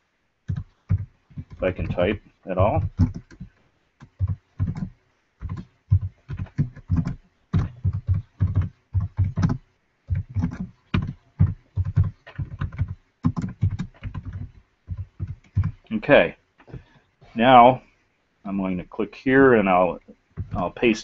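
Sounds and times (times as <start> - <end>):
typing on computer keyboard: 0.5 - 15.9.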